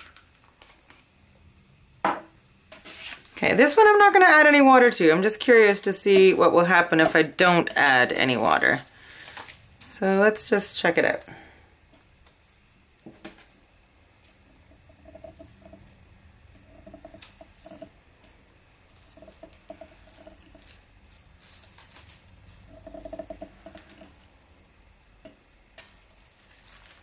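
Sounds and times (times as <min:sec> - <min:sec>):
cling film crinkling: 0:00.0 - 0:01.1, 0:07.8 - 0:10.0, 0:16.8 - 0:24.3, 0:25.7 - 0:27.0.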